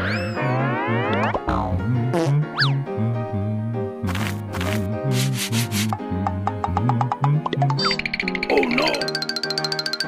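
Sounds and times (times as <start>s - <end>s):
bouncy cartoon music: 0.0s - 10.0s.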